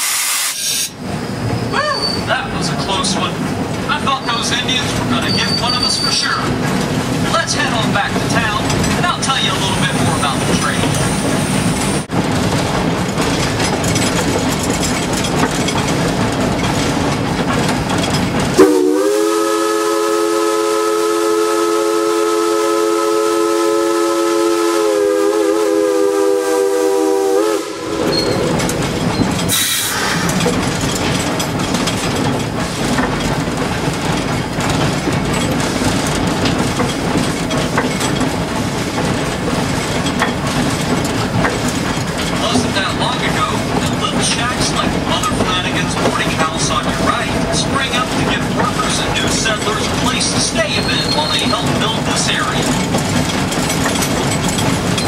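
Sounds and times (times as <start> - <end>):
steam hiss: 0.0 - 1.0, 29.5 - 30.4
steam locomotive whistle blast: 0.0 - 1.0, 18.6 - 28.4, 29.5 - 30.2
steam locomotive running noise: 0.0 - 55.0.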